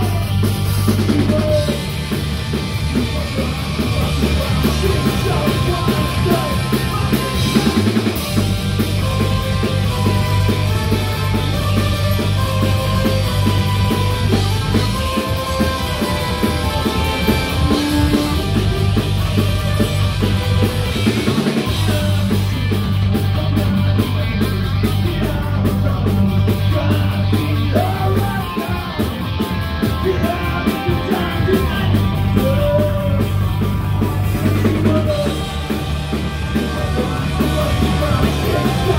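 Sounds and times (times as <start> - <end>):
man singing lead vocal: 0.0 - 8.4, 20.7 - 33.7, 34.3 - 38.9
punk rock band playing live: 0.0 - 38.9.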